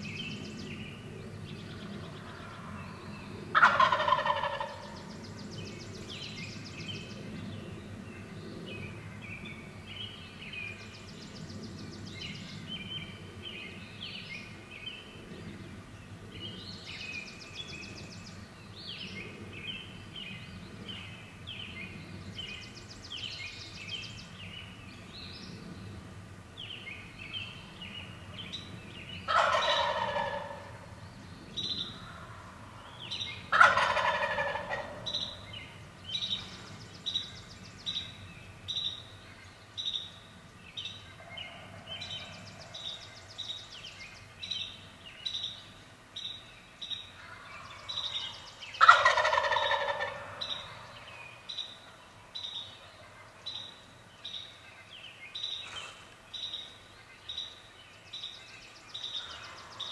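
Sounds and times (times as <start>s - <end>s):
songbirds chirping: 0.0s - 59.9s
turkey gobbling: 3.5s - 5.1s, 29.2s - 30.8s, 33.5s - 35.4s, 47.2s - 50.9s.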